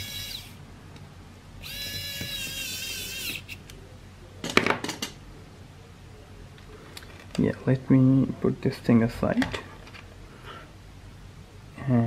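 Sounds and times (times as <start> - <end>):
electric screwdriver whine: 0.0 - 0.6, 1.6 - 3.6.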